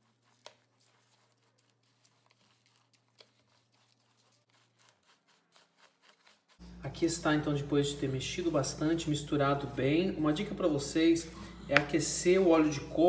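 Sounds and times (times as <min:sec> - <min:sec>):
dry ingredients stirred in plastic bowl: 0:00.0 - 0:13.0.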